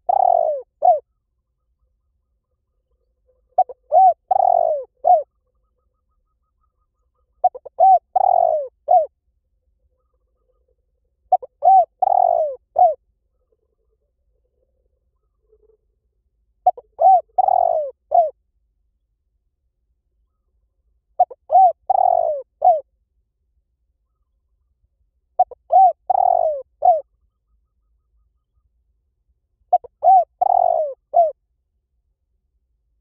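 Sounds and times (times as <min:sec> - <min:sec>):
dove cooing: 0:00.0 - 0:01.1, 0:03.6 - 0:05.4, 0:07.3 - 0:09.1, 0:11.3 - 0:13.0, 0:16.6 - 0:18.4, 0:21.2 - 0:22.9, 0:25.4 - 0:27.1, 0:29.7 - 0:31.4.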